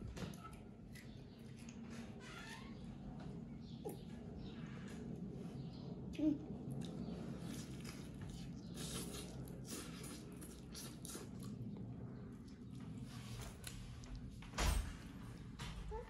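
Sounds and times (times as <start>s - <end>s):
chewing: 6.6s - 13.0s
wet biting and tearing meat: 7.4s - 11.7s.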